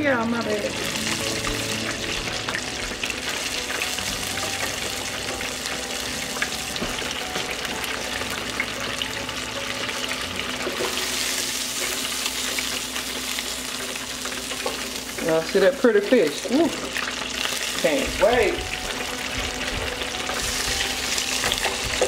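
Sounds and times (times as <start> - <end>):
fish deep-frying in bubbling oil: 0.0 - 22.0.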